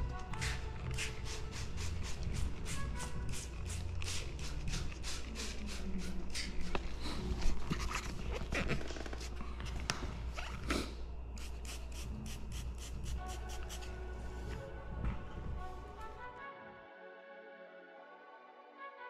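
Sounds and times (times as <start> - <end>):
spray bottle squirting: 0.3 - 6.5.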